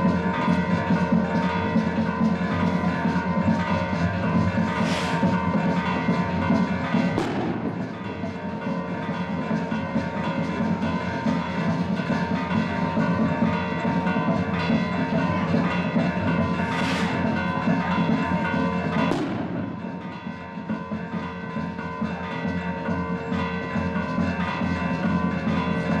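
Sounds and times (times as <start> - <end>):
bells ringing: 0.0 - 26.0
sharp bang: 7.2 - 8.4, 19.1 - 20.1.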